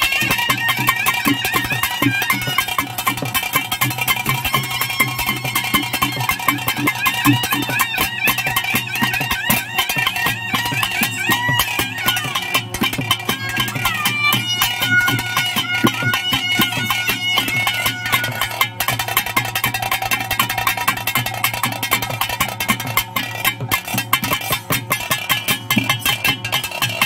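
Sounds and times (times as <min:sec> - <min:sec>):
reedy wind instrument melody: 0:00.0 - 0:19.4
rapid percussion strokes: 0:00.0 - 0:27.0.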